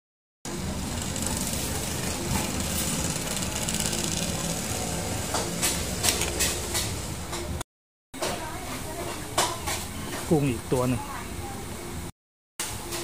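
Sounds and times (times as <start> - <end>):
motor humming: 0.5 - 7.3.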